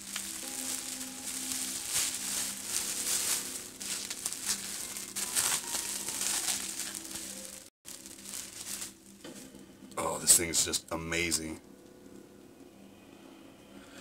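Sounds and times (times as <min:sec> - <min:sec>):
bubble wrap crinkling: 0:00.0 - 0:09.5.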